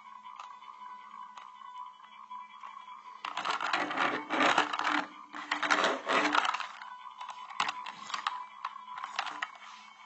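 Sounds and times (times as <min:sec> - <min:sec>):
small hard objects rattling: 0:03.3 - 0:06.7.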